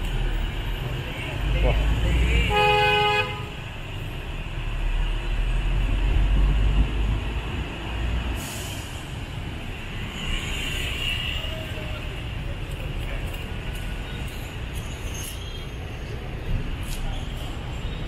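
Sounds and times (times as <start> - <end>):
bus engine rumble: 0.0 - 18.0
air brake hiss: 8.3 - 9.2.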